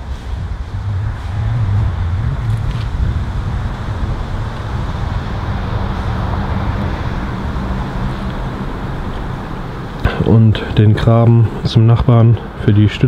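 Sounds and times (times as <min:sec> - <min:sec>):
engine running: 0:00.0 - 0:13.0.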